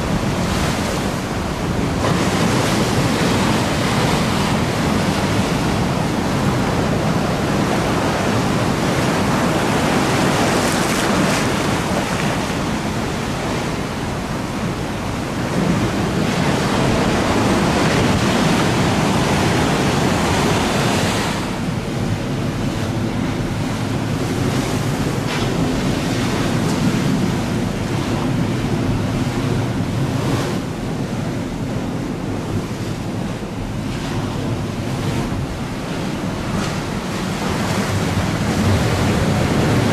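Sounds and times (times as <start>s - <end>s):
waves washing: 0.0s - 39.9s.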